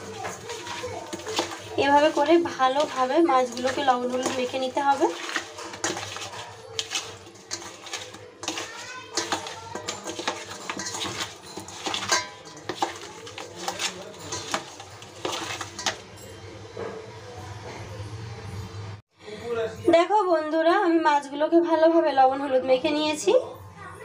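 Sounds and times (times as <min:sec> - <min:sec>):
hands rubbing fish in a bowl: 0:00.0 - 0:16.1
clinks against metal bowl: 0:00.0 - 0:17.0.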